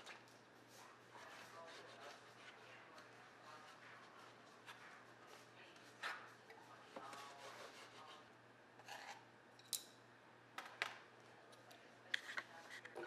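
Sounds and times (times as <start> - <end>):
knife scraping cutting board: 8.8 - 9.2.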